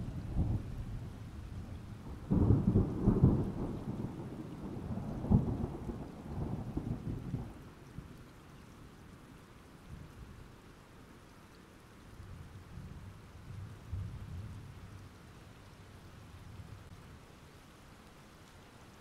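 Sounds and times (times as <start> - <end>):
thunder rumbling: 0.0 - 7.6
steady rain: 0.0 - 19.0.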